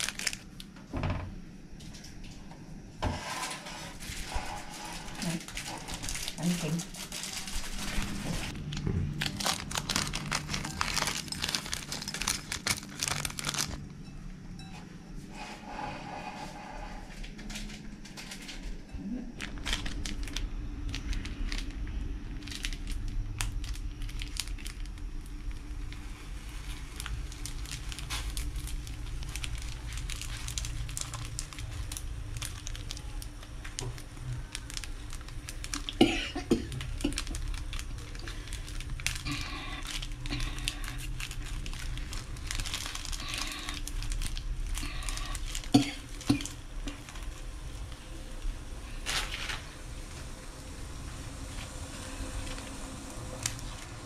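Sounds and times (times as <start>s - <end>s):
plastic sachet crinkling: 0.0s - 0.7s, 4.0s - 13.9s, 19.4s - 49.6s, 51.6s - 54.0s
water boiling with pops: 45.6s - 48.6s.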